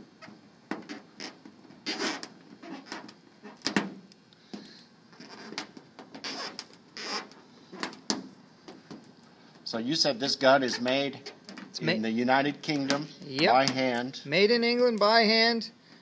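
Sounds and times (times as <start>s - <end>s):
glue peeling clicks and rubs: 4.6s - 9.3s.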